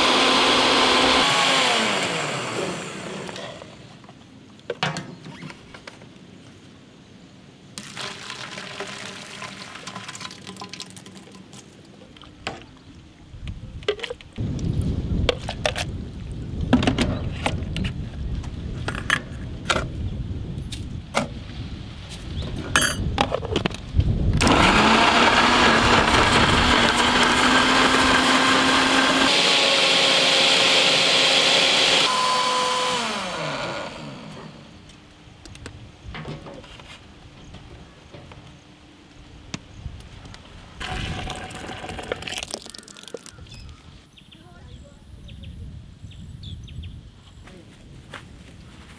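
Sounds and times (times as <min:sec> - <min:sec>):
mixer grinder running: 0:00.0 - 0:03.8, 0:07.8 - 0:10.6, 0:24.4 - 0:34.9, 0:40.8 - 0:42.9
milkshake pouring: 0:07.8 - 0:12.4, 0:40.8 - 0:43.5.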